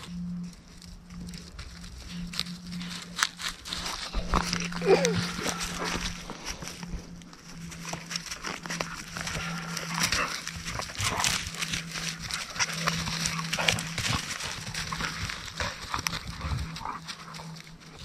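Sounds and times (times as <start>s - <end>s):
dogs scuffling on dry leaves: 0.0s - 18.0s
steady low hum: 0.0s - 18.0s.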